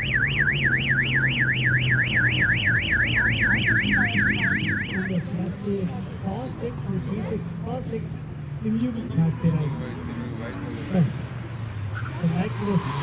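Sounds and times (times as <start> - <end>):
electronic warbling alarm: 0.0 - 5.2
car engine idling: 0.0 - 9.0.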